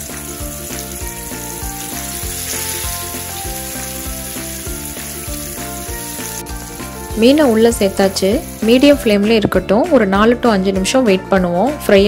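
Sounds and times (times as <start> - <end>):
hot oil sizzling: 0.0 - 9.5
soft background music with beat: 0.0 - 12.0.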